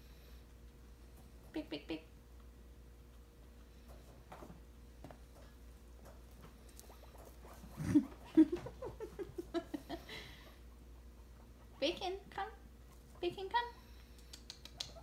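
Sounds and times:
guinea pig squeaking: 6.6s - 9.0s, 10.4s - 15.0s.

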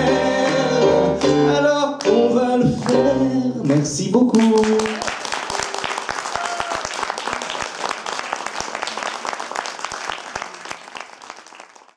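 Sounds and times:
audience applauding: 4.4s - 11.9s.

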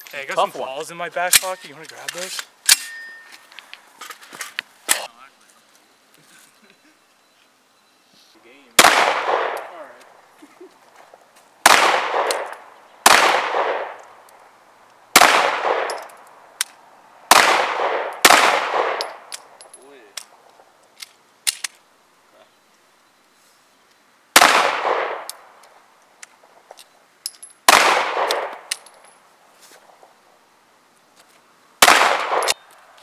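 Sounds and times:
pistol shots echoing: 8.8s - 9.7s, 11.6s - 14.0s, 15.2s - 16.1s, 17.3s - 19.2s, 24.4s - 25.3s, 27.7s - 28.7s, 31.8s - 32.6s.

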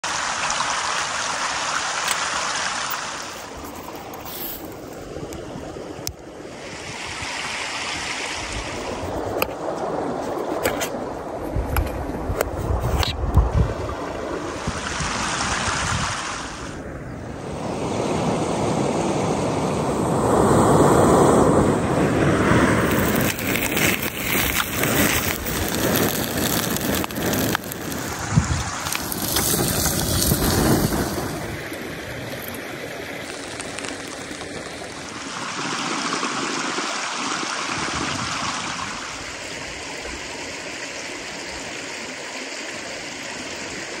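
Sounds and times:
wind buffeting the microphone: 3.5s - 36.4s.

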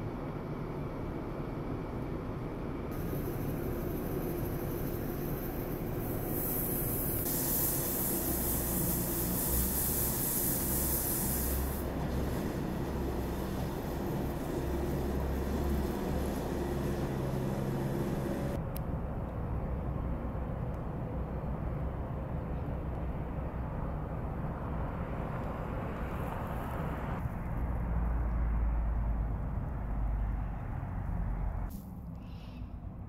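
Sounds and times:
outdoor background noise: 0.0s - 33.0s
loader engine droning: 11.5s - 18.8s.

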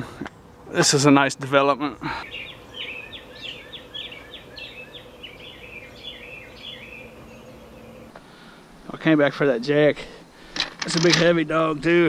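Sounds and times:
birds chirping: 0.0s - 8.7s
faint steady hum: 0.0s - 10.8s.

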